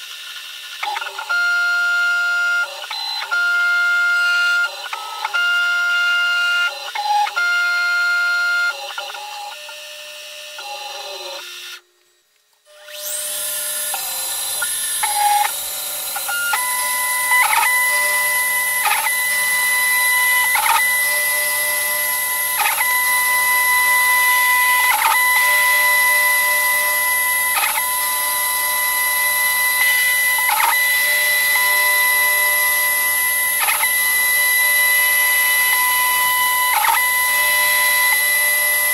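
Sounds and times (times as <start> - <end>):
milling machine high whine: 12.7 - 38.9.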